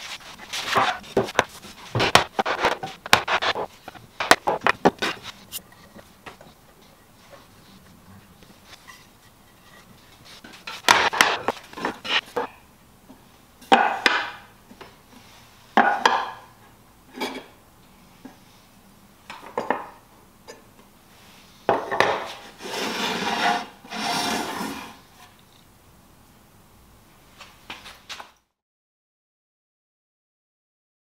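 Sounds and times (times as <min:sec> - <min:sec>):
wooden frame scraping on bench: 0:00.0 - 0:06.1, 0:22.1 - 0:25.1.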